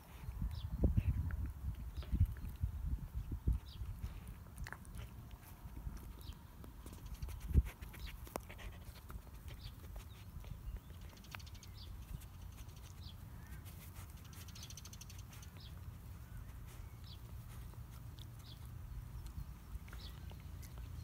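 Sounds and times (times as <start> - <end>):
clicks of dog's teeth: 3.8 - 13.0, 17.7 - 21.0
bird chirps: 9.5 - 17.7.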